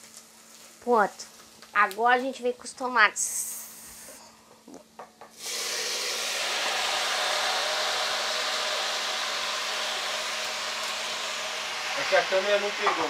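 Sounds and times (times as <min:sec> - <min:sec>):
tomatoes sizzling in hot oil: 0:00.0 - 0:04.2, 0:05.3 - 0:13.0.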